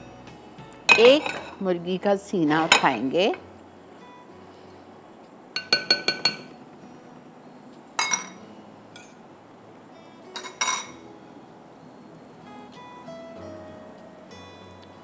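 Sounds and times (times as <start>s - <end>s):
metal fork clinking on ceramic bowls: 8.0s - 8.4s, 10.4s - 10.9s.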